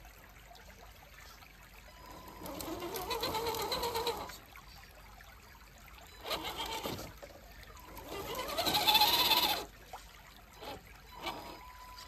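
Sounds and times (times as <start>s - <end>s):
electric motor whining: 6.2s - 7.1s, 7.9s - 9.7s, 10.6s - 12.0s.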